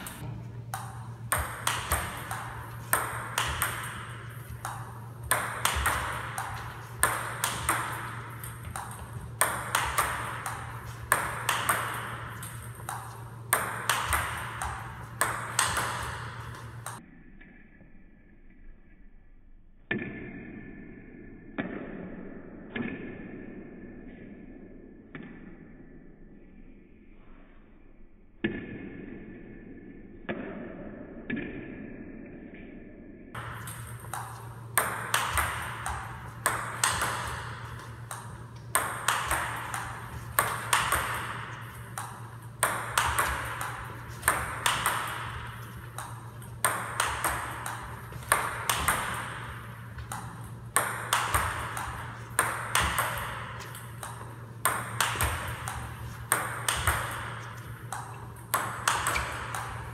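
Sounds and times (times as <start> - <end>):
table tennis ball clicks: 0.0 - 17.0, 33.4 - 59.9
steady low hum: 0.0 - 19.8, 32.0 - 59.9.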